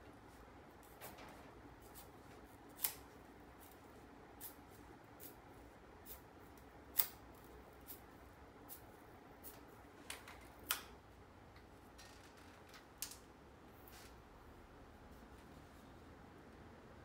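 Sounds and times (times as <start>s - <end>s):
knife scraping bamboo strip: 2.7s - 3.0s.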